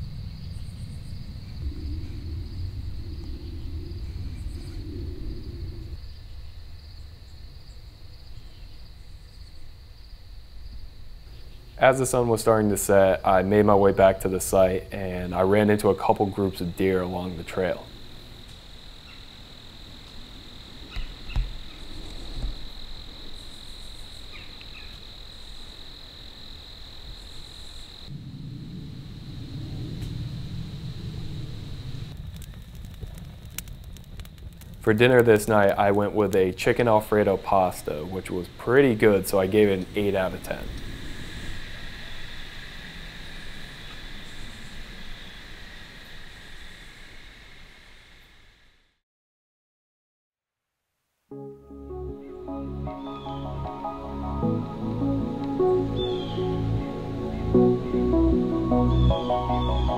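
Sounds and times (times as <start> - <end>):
low outdoor rumble: 0.0 - 24.2, 28.1 - 45.1
insect rasps: 0.0 - 48.5
crickets chirping: 0.0 - 48.9, 52.0 - 59.9.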